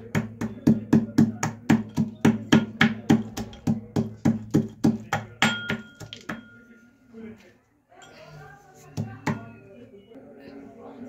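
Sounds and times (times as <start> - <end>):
pestle pounding in metal mortar: 0.0 - 6.4.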